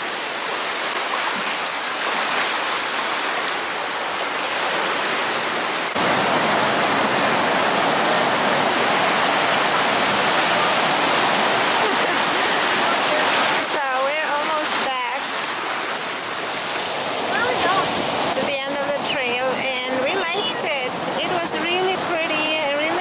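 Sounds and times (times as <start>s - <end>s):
ocean surf washing over boulders: 0.0s - 23.0s.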